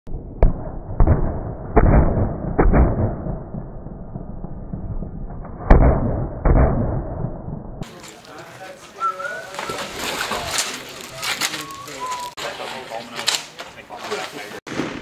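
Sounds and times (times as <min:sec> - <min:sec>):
muffled gunshots: 0:00.4 - 0:03.6, 0:05.6 - 0:07.2, 0:14.7 - 0:15.0.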